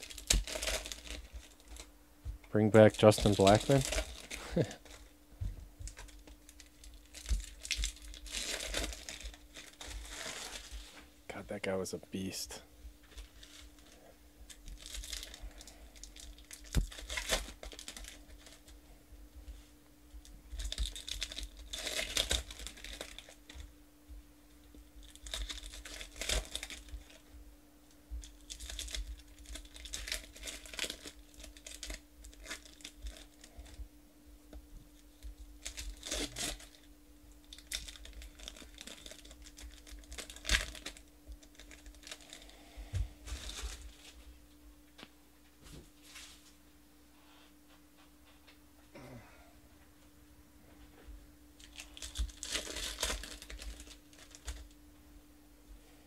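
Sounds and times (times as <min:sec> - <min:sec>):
foil wrappers tearing and crinkling: 0:00.0 - 0:01.9, 0:02.7 - 0:05.1, 0:05.9 - 0:11.0, 0:13.1 - 0:18.8, 0:20.5 - 0:23.7, 0:24.8 - 0:27.2, 0:28.2 - 0:33.8, 0:35.0 - 0:44.2, 0:51.6 - 0:54.8
faint steady hum: 0:00.0 - 0:56.0.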